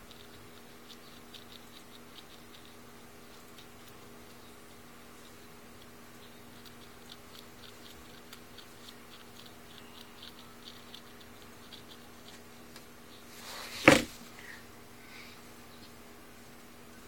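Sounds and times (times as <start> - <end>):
quill scratching against hair: 0.0 - 12.5
low electrical hum: 0.0 - 17.0
rustling: 6.6 - 16.0.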